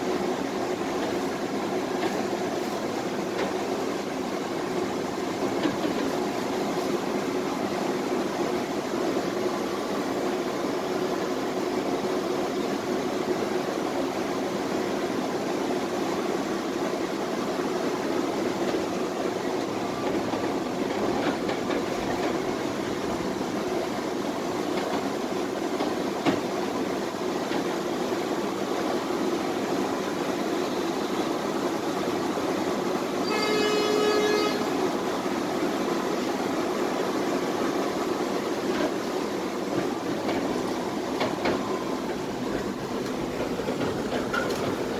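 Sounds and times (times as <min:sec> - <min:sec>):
tram wheels and motors running: 0:00.0 - 0:44.9
tram horn: 0:33.2 - 0:35.0.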